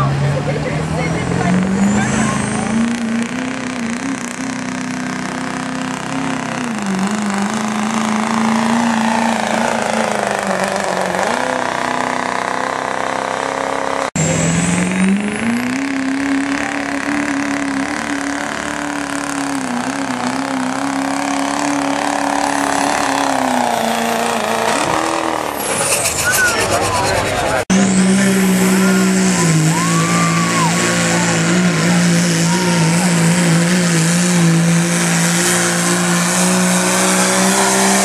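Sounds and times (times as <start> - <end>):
diesel truck engine at high revs: 0.0 - 38.0.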